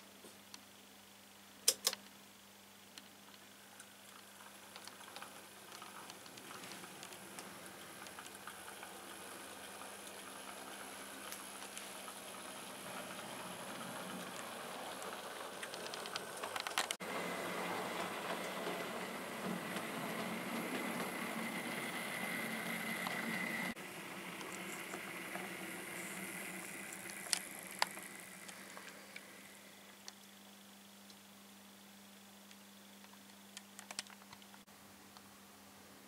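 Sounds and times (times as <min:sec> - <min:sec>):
steady high whine: 0:02.8 - 0:33.2
wheels clicking on rails: 0:03.3 - 0:29.7
model train running on track: 0:04.2 - 0:29.8.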